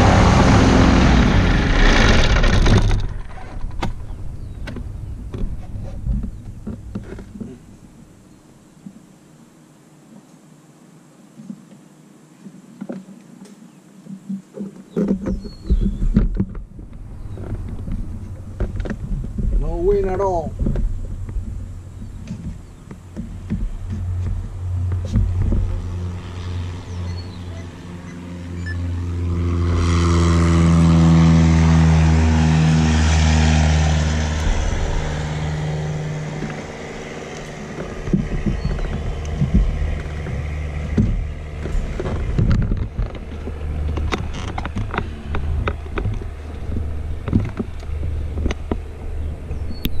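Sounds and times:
louder engine passing: 0:00.0 - 0:05.2, 0:23.0 - 0:49.9
light aircraft engine idling: 0:16.6 - 0:50.0.

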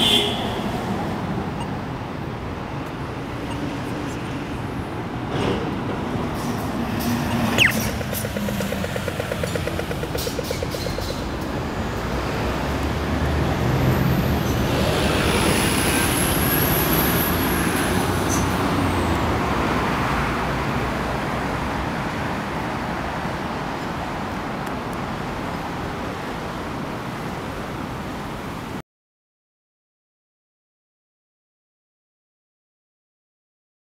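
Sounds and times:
bus passing with high whine: 0:00.0 - 0:28.8
road traffic: 0:00.0 - 0:28.8
crossing signal rapid ticking: 0:07.4 - 0:12.2.

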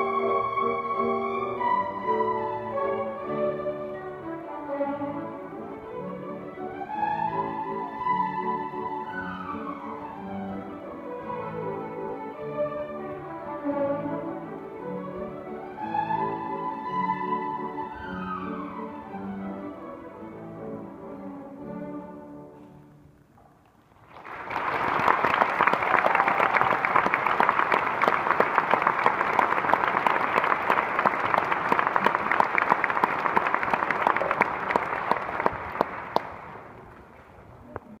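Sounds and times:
violins playing held notes: 0:00.0 - 0:22.9
audience applause: 0:24.0 - 0:36.9.

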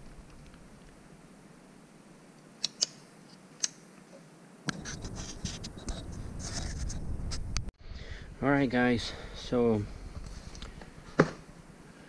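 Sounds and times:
sharp light clicks: 0:02.6 - 0:03.0
scratching and handling noise: 0:04.7 - 0:07.5, 0:10.2 - 0:11.4.

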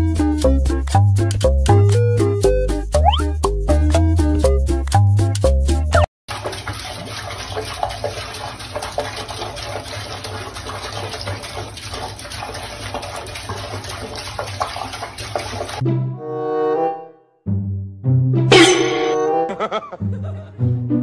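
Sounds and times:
faucet running into sink: 0:06.3 - 0:15.8.

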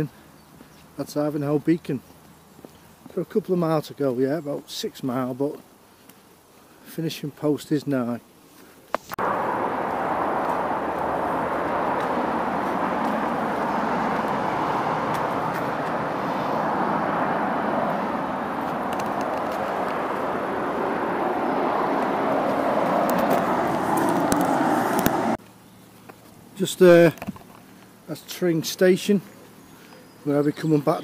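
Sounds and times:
road traffic rushing: 0:09.1 - 0:25.4.

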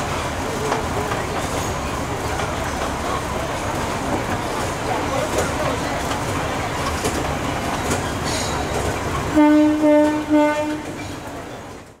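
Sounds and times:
station crowd noise: 0:00.0 - 0:12.0
train horn short toots: 0:09.3 - 0:11.1.

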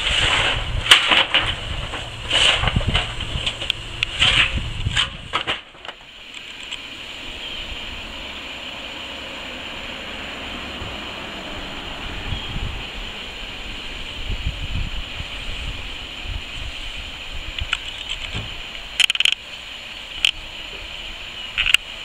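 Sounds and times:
coal shovelling and clattering: 0:00.0 - 0:06.1
steam hissing: 0:00.0 - 0:22.0.

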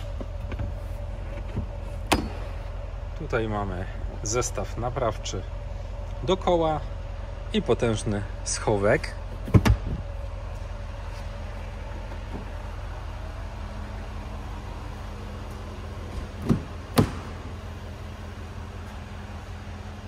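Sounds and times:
steady low hum: 0:00.0 - 0:20.0
car boot being shut: 0:09.4 - 0:10.0, 0:16.1 - 0:17.6.

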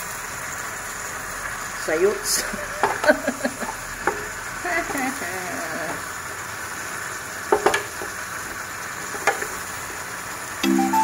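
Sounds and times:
food sizzling in a frying pan: 0:00.0 - 0:11.0
spatula knocking on pan: 0:02.8 - 0:03.1, 0:04.0 - 0:04.3, 0:07.5 - 0:08.0.

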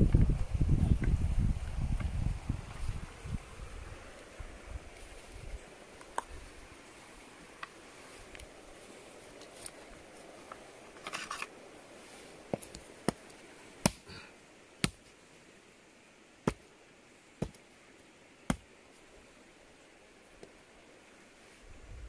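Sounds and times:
handling rustle: 0:04.9 - 0:13.5.

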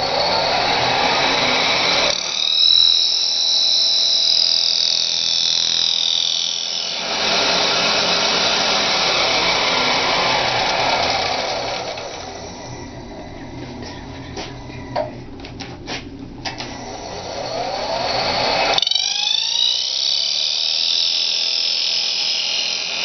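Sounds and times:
lathe tool rasping wood: 0:00.0 - 0:12.6
high squeal of tool on wood: 0:00.0 - 0:13.0, 0:16.8 - 0:23.0.

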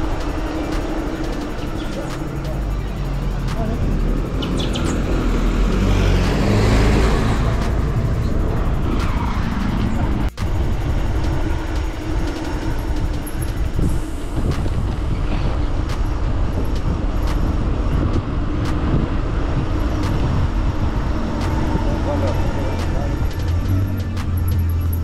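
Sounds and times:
wind rumble on microphone: 0:00.0 - 0:25.0.

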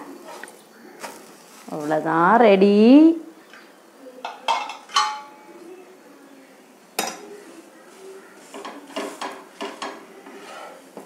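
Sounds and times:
metal spatula clinking on a griddle: 0:04.2 - 0:05.4, 0:08.5 - 0:10.0.

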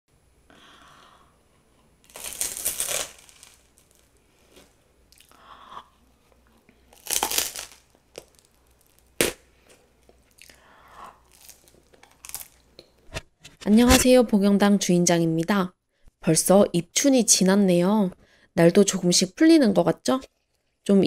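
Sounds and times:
crusty bread crunching: 0:02.0 - 0:05.3, 0:06.5 - 0:10.5, 0:11.2 - 0:12.8
chewing and tearing: 0:06.4 - 0:09.4, 0:11.2 - 0:12.6.

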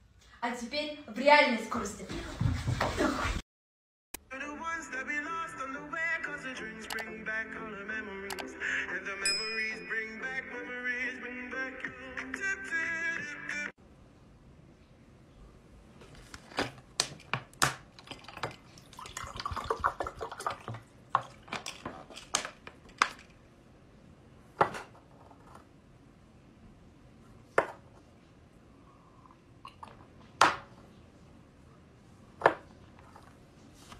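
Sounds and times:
plastic bottle crinkling: 0:16.1 - 0:23.3
water pouring into a glass: 0:18.0 - 0:21.8.

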